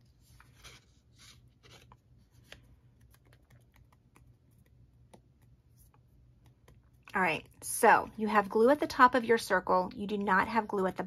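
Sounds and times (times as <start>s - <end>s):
paper rustling between fingers: 0.0s - 4.8s.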